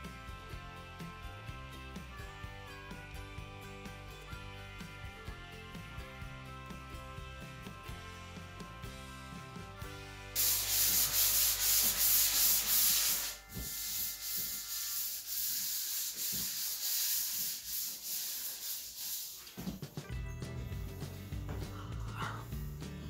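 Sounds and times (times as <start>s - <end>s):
sanding sponge rasping on drywall: 10.4s - 19.7s.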